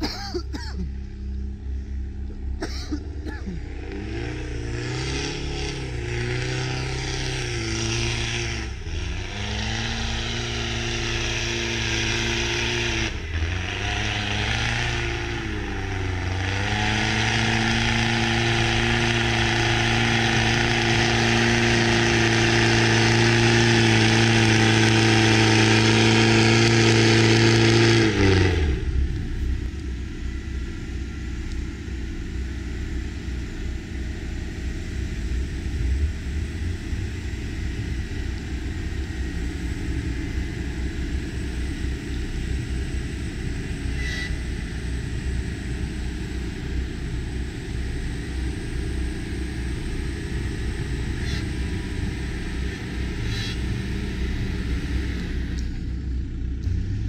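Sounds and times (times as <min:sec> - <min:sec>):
low rumble: 0:00.0 - 0:10.6, 0:27.9 - 0:57.0
engine revving hard: 0:03.0 - 0:29.5
tyres spinning in snow: 0:03.0 - 0:56.2.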